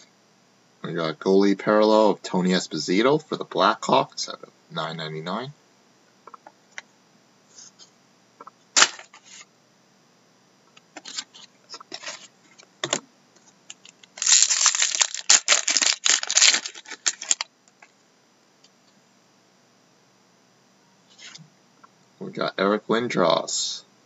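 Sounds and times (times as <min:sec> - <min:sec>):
cards clicking and rustling: 0:13.7 - 0:17.4
wrapper crinkling: 0:13.7 - 0:17.5.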